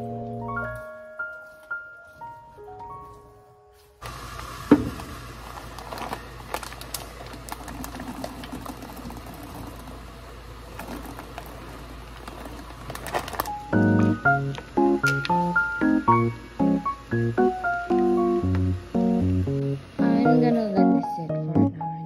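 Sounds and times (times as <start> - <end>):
plastic pouch rustling: 12.1 - 14.1.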